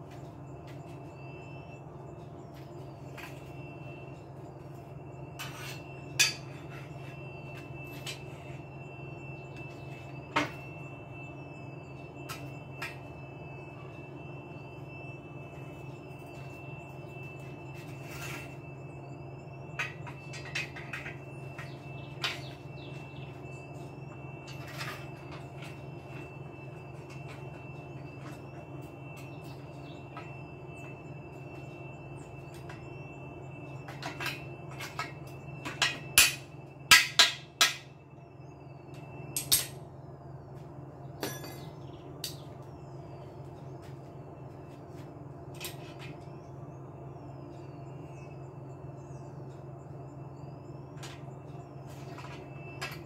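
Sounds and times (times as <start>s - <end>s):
faint high whine: 0.0s - 53.0s
steady low hum: 0.0s - 53.0s
knocks and clanks on metal: 41.2s - 41.8s.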